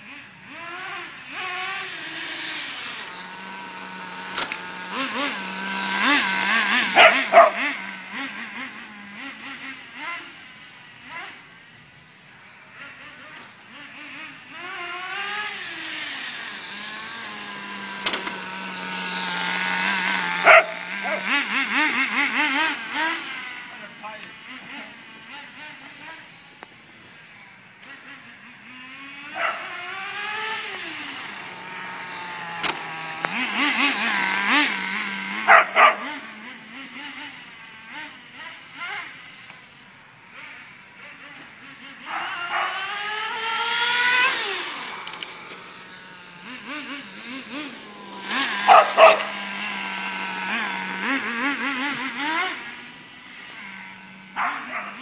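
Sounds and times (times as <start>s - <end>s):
rc car engine revving: 0.0s - 55.0s
dog barking: 7.0s - 7.7s, 20.4s - 21.2s, 29.4s - 29.6s, 35.5s - 36.1s, 42.1s - 42.8s, 48.7s - 49.3s, 54.4s - 55.0s.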